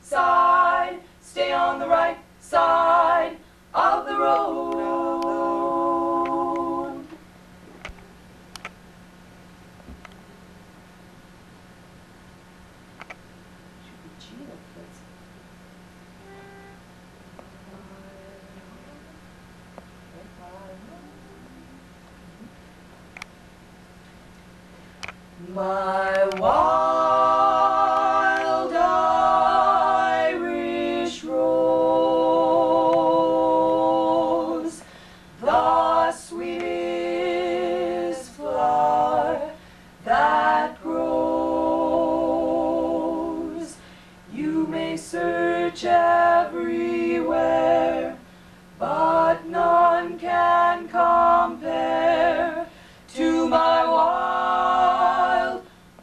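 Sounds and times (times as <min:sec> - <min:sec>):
women singing a cappella harmony: 0:00.0 - 0:07.3, 0:17.3 - 0:19.2, 0:25.4 - 0:56.0.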